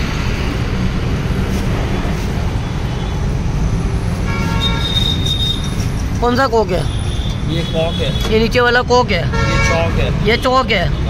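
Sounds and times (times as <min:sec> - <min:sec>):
street traffic rumble: 0:00.0 - 0:11.0
vehicle horn: 0:04.2 - 0:05.8, 0:09.3 - 0:10.2.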